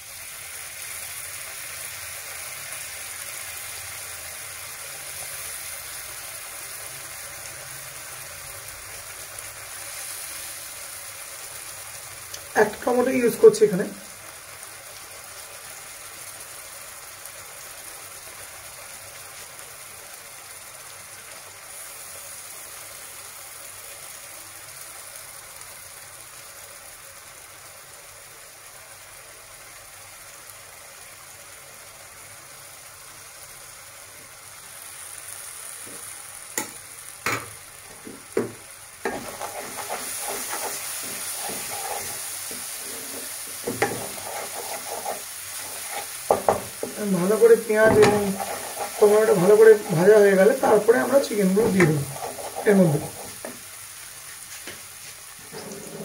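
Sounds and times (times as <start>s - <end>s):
vegetables sizzling in oil: 0.0s - 56.0s
spatula scraping a pan: 37.9s - 53.6s, 55.4s - 56.0s.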